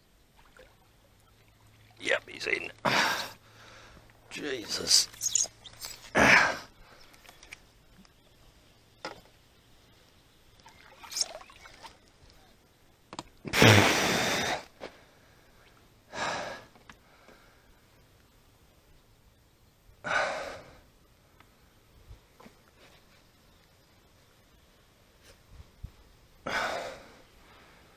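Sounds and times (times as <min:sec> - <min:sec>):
person exhaling and sighing: 0:26.4 - 0:27.9.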